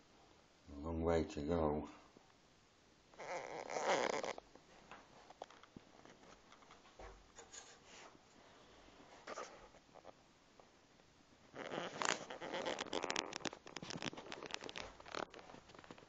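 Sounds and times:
faint rustles: 11.5s - 16.0s.

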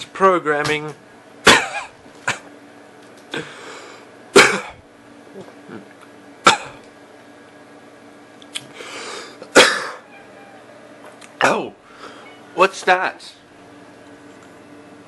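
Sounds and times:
person coughing: 1.5s - 2.5s, 4.4s - 4.8s, 6.4s - 6.8s, 9.4s - 10.0s.

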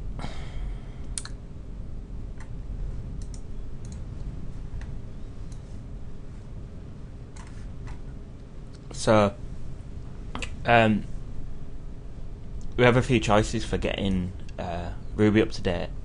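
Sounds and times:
steady low hum: 0.0s - 16.0s
light clicks: 1.0s - 1.4s, 3.2s - 5.7s.

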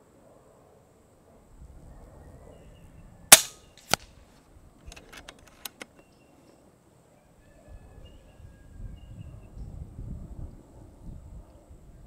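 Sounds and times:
air rifle shot: 3.3s - 4.0s
metallic clicks of rifle lever: 4.8s - 6.0s.

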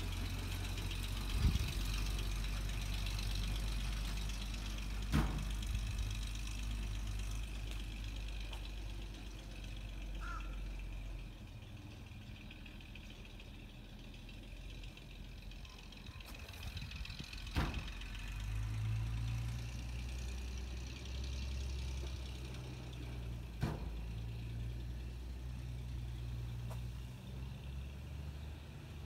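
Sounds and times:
truck engine running: 0.0s - 29.0s
engine pops: 4.0s - 6.7s, 15.9s - 18.2s.

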